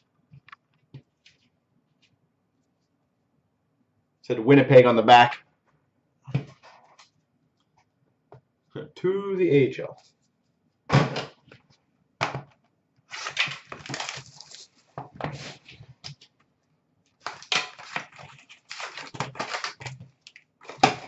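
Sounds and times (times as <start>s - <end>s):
cardboard boxes rustling and crinkling: 13.1s - 16.2s, 17.2s - 21.0s.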